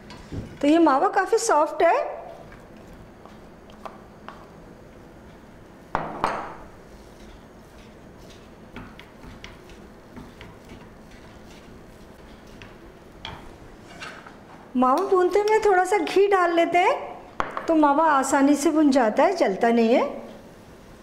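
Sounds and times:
wooden spatula scraping a pan: 0:06.8 - 0:12.8, 0:13.7 - 0:14.3.

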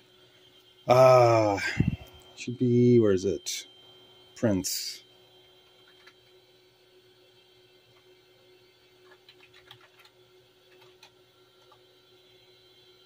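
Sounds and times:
electrical hum: 0:00.0 - 0:13.0
keyboard keystrokes: 0:09.0 - 0:10.1.

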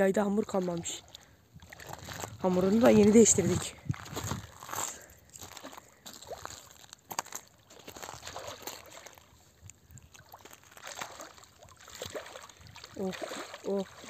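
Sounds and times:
sharp water splashes: 0:00.0 - 0:04.6, 0:07.6 - 0:09.4, 0:10.0 - 0:14.0
water sloshing around legs: 0:00.0 - 0:14.0.

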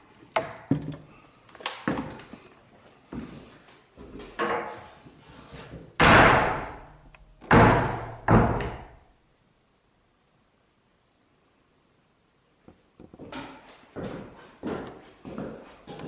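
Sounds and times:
wooden door banging shut: 0:06.0 - 0:09.0.

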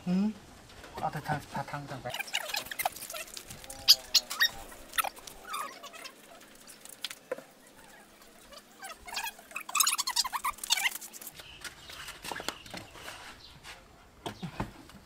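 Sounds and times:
high chirping animal calls: 0:02.1 - 0:11.6.

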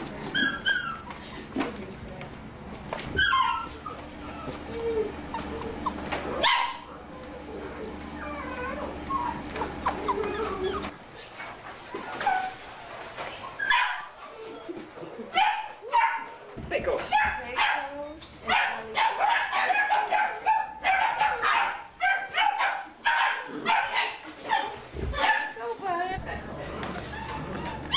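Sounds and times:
puppies barking and whimpering: 0:00.0 - 0:01.8, 0:02.5 - 0:27.9.

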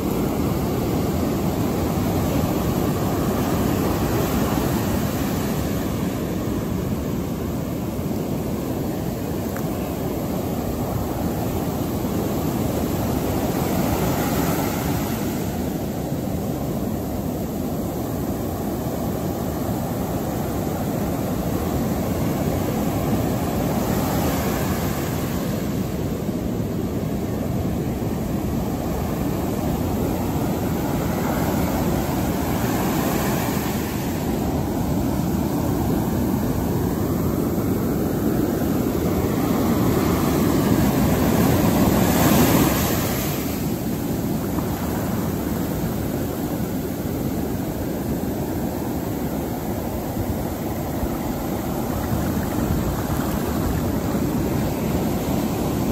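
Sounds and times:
ocean surf breaking: 0:00.0 - 0:55.9.

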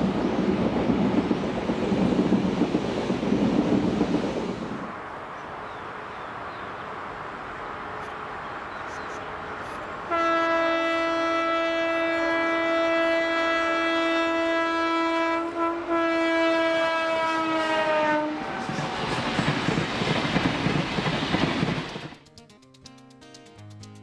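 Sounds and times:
train approaching: 0:00.0 - 0:22.4
locomotive horn blast: 0:10.0 - 0:19.1.

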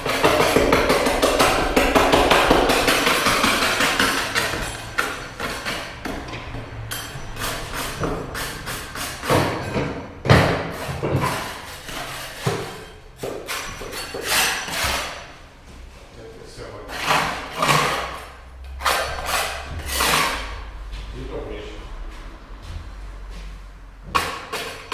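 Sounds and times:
knocks on wooden floor: 0:00.0 - 0:06.3.

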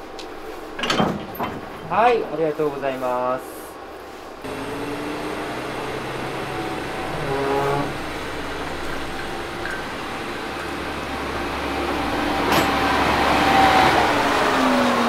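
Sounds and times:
diesel train engine idling: 0:03.5 - 0:15.0.

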